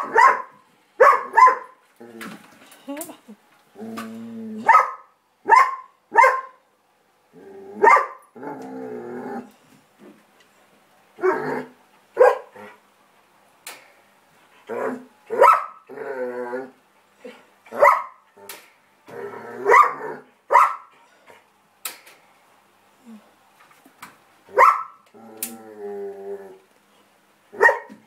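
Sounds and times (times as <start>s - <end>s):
dog barking: 0.0s - 1.8s, 4.6s - 6.6s, 7.8s - 8.2s, 12.2s - 12.5s, 15.3s - 15.8s, 17.8s - 18.2s, 19.7s - 20.9s, 24.6s - 25.0s, 27.6s - 28.0s.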